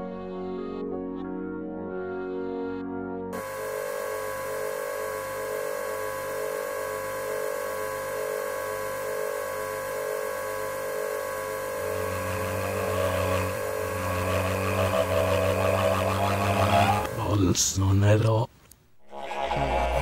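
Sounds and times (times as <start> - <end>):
droning hum of held tones: 3.3 - 20.0
low pulse: 19.0 - 20.0.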